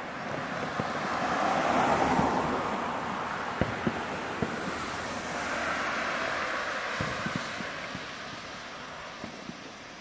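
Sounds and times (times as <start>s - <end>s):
sharp firework bangs: 3.5s - 10.0s.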